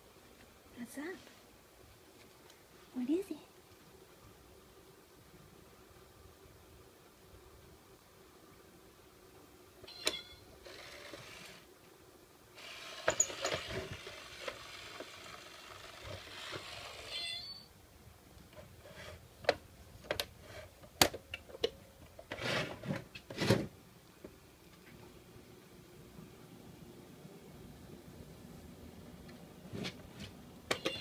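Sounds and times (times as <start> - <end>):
geared mechanism whirring: 10.6 - 11.7, 12.6 - 17.4.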